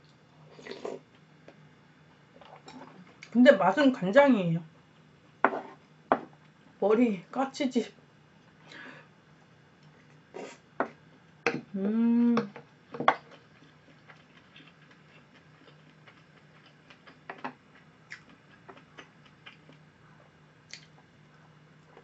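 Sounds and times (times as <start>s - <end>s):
person humming: 11.7s - 12.6s
chewing: 13.2s - 21.1s.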